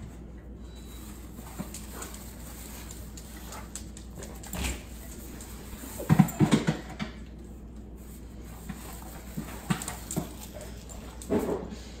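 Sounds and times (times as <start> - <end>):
dog claws clicking on tile: 1.5 - 7.1.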